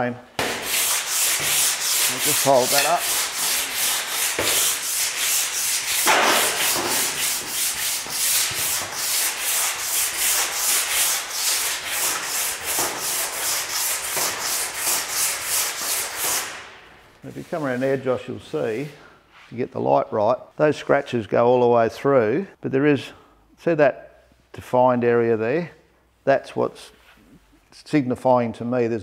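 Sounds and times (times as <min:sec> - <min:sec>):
file rasping across steel: 0:00.4 - 0:16.5.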